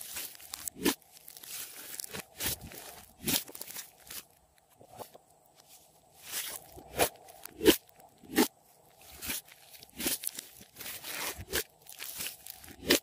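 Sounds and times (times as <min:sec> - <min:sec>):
slime squishing and crackling: 0:00.0 - 0:04.7, 0:06.3 - 0:13.0.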